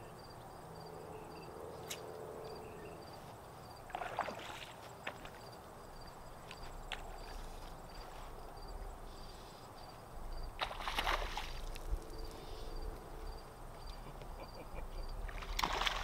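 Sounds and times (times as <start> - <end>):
fish splashing at water surface: 3.9 - 5.4, 10.6 - 11.9, 15.3 - 16.0.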